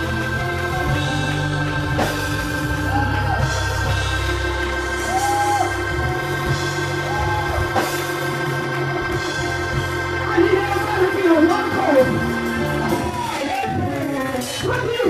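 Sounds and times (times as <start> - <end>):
gospel band playing: 0.0 - 15.0.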